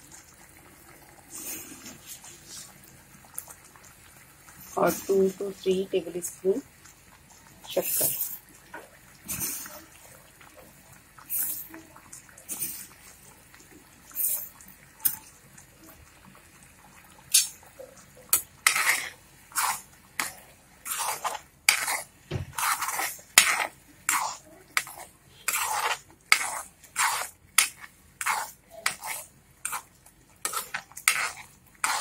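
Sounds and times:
spoon scraping and knocking a pan: 0:18.3 - 0:32.0.

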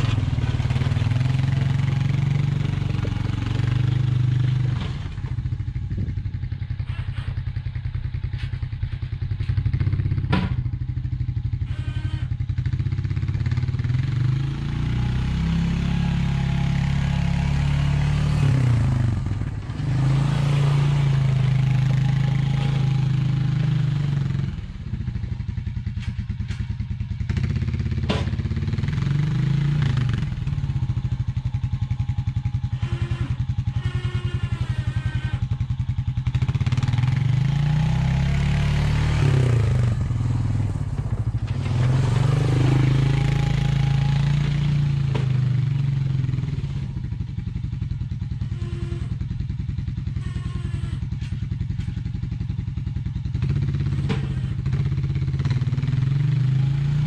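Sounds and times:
quad bike engine revving: 0:00.0 - 0:07.3, 0:09.4 - 0:10.6, 0:12.7 - 0:25.4, 0:27.2 - 0:52.4, 0:53.0 - 0:57.0.

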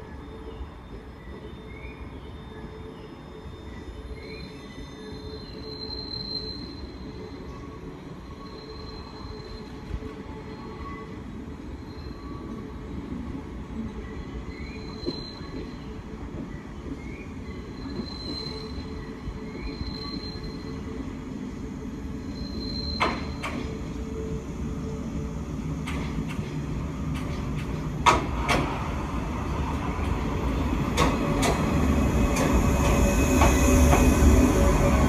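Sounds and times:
train rumble: 0:07.0 - 0:35.0
wheels clacking over rail joints: 0:30.8 - 0:34.1.

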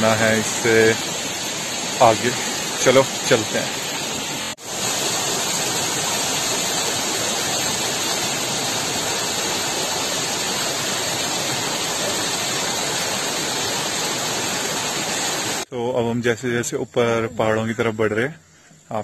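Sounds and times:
waterfall splashing: 0:00.0 - 0:15.7.

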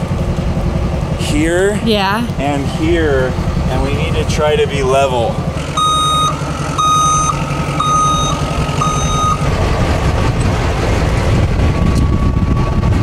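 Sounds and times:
diesel engine low rumble: 0:00.0 - 0:13.0
truck backup alarm beeping: 0:05.6 - 0:10.3.

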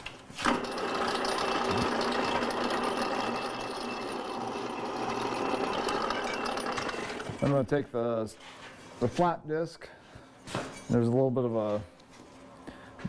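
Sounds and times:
drill press boring metal: 0:00.4 - 0:07.5.

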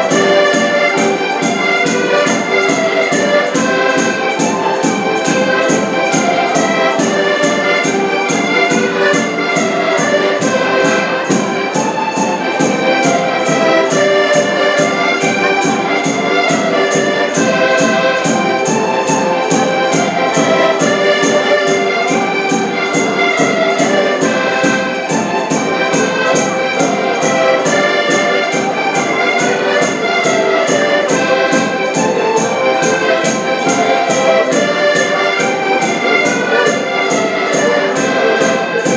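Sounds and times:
accordions playing folk tune: 0:00.0 - 0:38.9.

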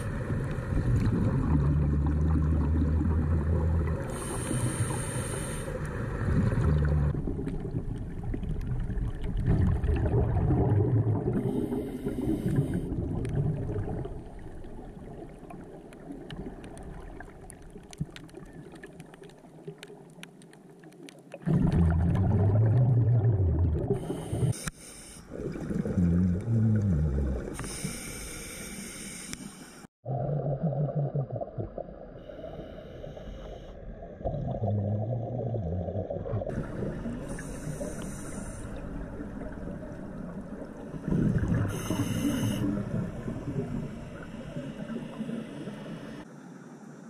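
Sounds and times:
diver breathing through regulator: 0:04.1 - 0:05.8, 0:11.4 - 0:13.0, 0:24.0 - 0:25.4, 0:26.8 - 0:29.9, 0:32.2 - 0:33.8, 0:37.2 - 0:39.0, 0:40.9 - 0:46.3
bubbling exhalations underwater: 0:06.3 - 0:14.4, 0:21.4 - 0:24.5, 0:25.3 - 0:27.6, 0:30.0 - 0:31.9, 0:34.2 - 0:38.6, 0:40.9 - 0:43.9.

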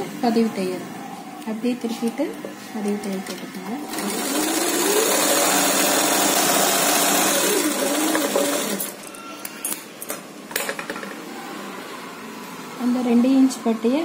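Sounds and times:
sewing machine running: 0:03.9 - 0:09.0.

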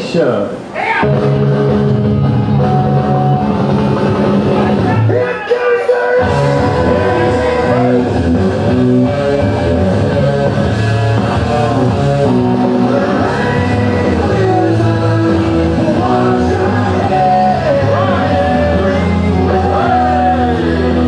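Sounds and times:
rock music with guitar: 0:01.0 - 0:05.3, 0:05.9 - 0:21.0.

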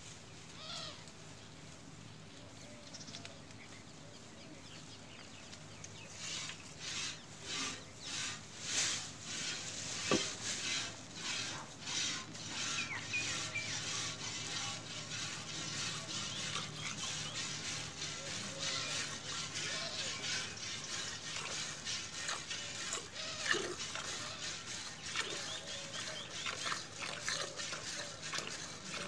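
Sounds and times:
milk squirting into steel bucket: 0:20.3 - 0:29.0.

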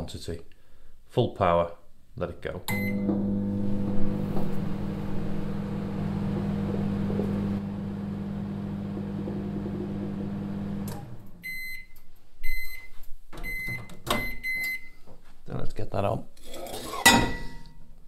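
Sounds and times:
microwave oven humming: 0:02.7 - 0:11.6.

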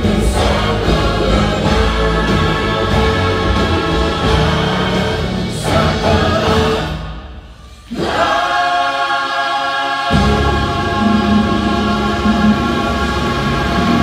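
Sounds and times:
bass and drums: 0:00.0 - 0:07.0
choir singing over music: 0:00.0 - 0:14.0.

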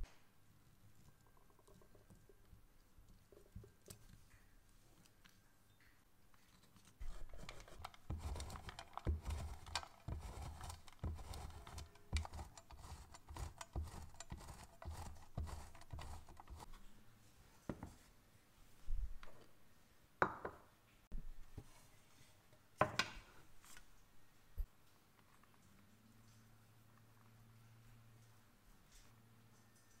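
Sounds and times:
cheese rasping on grater: 0:07.0 - 0:16.7.

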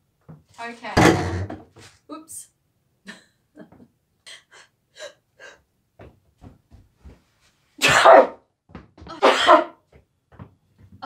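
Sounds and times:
woman sneezing: 0:07.8 - 0:08.4, 0:09.2 - 0:09.8.

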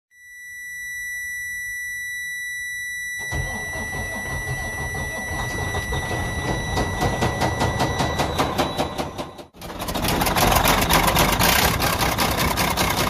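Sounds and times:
high-pitched warning buzzer: 0:00.2 - 0:09.5
diesel engine running: 0:03.3 - 0:13.0
engine knocking: 0:03.7 - 0:13.0.

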